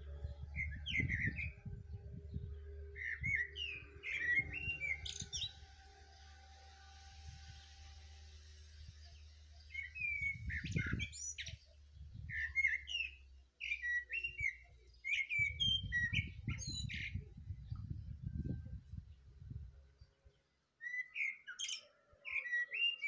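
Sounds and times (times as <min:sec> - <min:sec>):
low microphone rumble: 0:00.0 - 0:12.5, 0:15.4 - 0:20.1.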